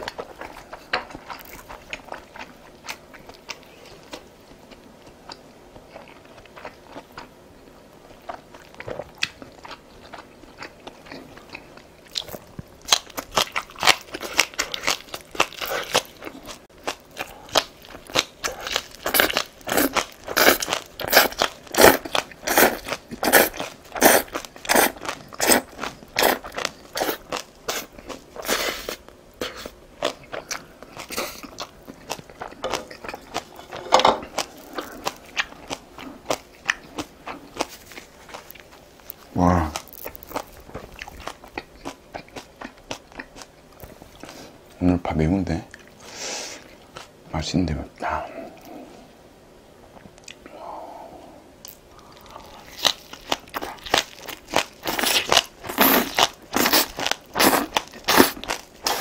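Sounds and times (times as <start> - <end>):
crunchy chewing: 8.0 - 44.6, 51.6 - 59.0.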